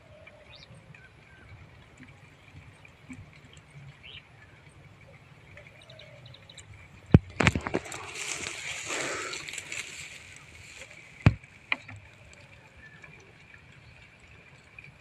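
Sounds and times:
rustling on dry grass: 0:07.2 - 0:12.0.

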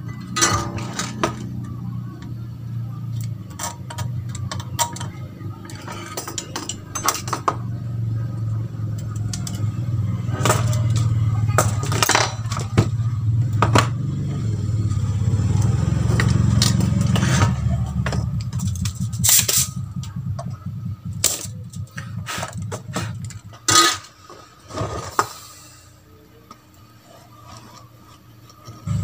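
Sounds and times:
tools clicking and tapping: 0:03.1 - 0:07.8, 0:08.9 - 0:09.7
low rumble: 0:06.7 - 0:23.7.

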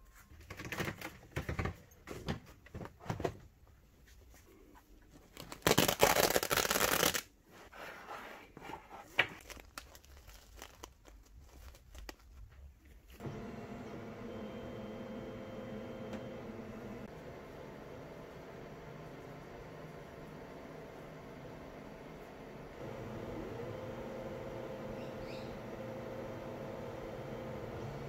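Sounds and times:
velcro tearing rip: 0:05.4 - 0:07.4, 0:09.4 - 0:12.2
steady machine hum: 0:13.2 - 0:28.0.

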